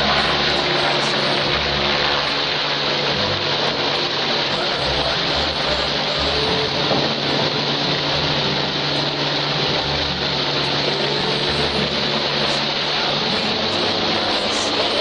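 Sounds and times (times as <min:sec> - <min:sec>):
helicopter flying overhead: 0:00.0 - 0:15.0.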